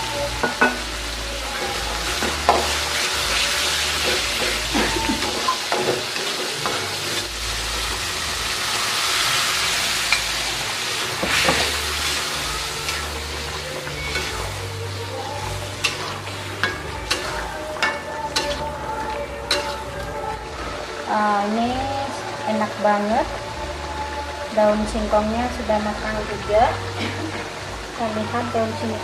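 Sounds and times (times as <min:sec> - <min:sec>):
sauce sizzling in a wok: 0:00.0 - 0:29.0
metal spatula scraping: 0:11.2 - 0:20.5.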